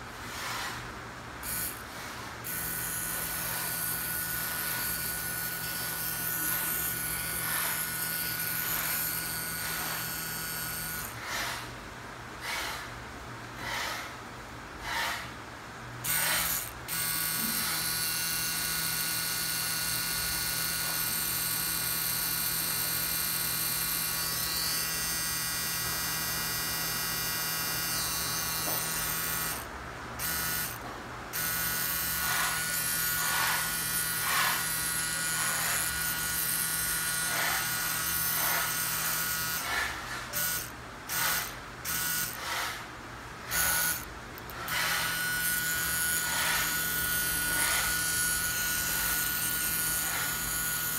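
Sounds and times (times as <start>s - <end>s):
tattoo pen motor buzzing: 1.4s - 11.6s, 16.0s - 50.9s.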